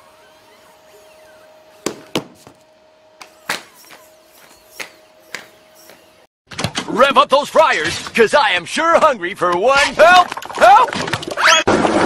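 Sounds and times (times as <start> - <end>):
sharp knocks and thuds: 1.8 - 2.6.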